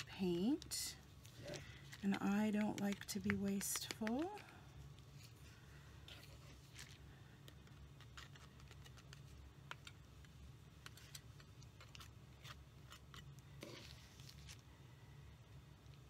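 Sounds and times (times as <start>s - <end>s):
low room hum: 0.0s - 16.0s
palette knife scraping paint: 11.8s - 14.6s.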